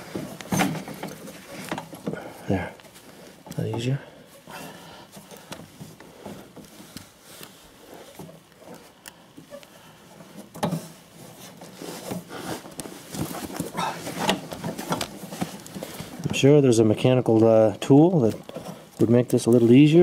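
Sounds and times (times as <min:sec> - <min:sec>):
people grunting and breathing hard: 0:00.0 - 0:03.5, 0:13.6 - 0:14.6
rubber belt clicking and rustling: 0:00.0 - 0:20.0.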